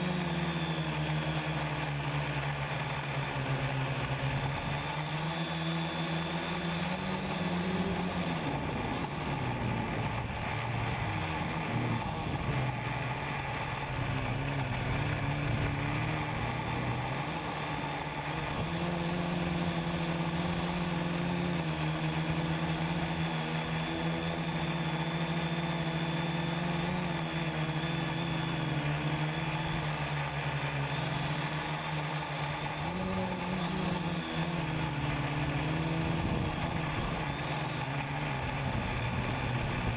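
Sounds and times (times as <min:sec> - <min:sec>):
quadcopter motors buzzing: 0:00.0 - 0:39.9.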